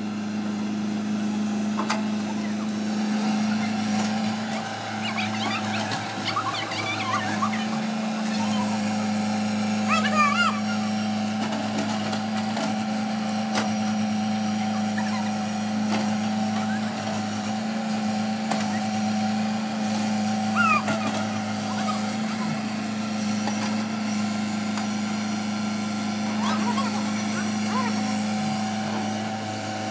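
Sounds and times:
excavator diesel engine running: 0.0 - 29.9.

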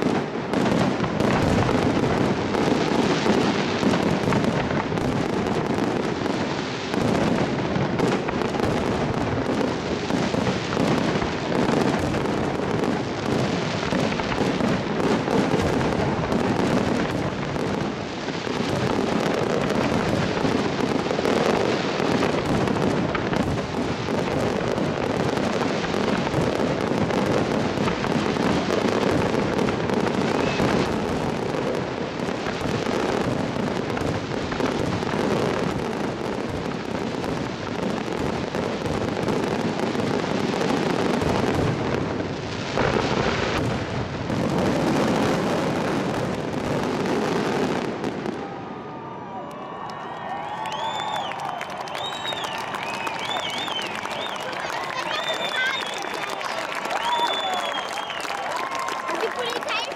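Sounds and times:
fireworks bangs and crackling: 0.0 - 59.9.

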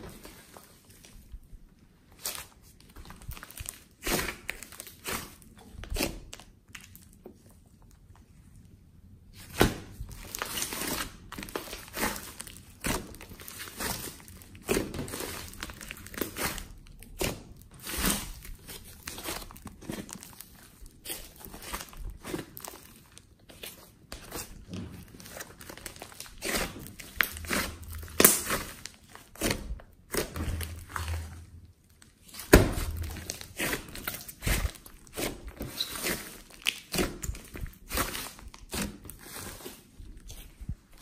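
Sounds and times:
slime popping and crackling: 9.6 - 23.2, 24.2 - 39.4.

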